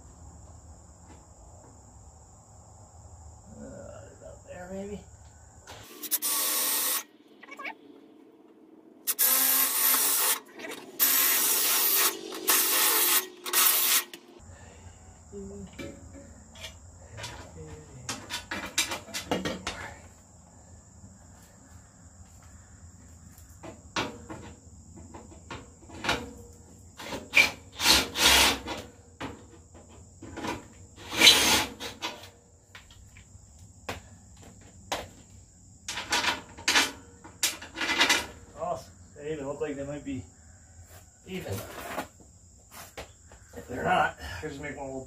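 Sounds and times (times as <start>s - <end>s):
crickets trilling: 0.0s - 45.0s
exhaust pipe parts clattering: 35.8s - 38.5s.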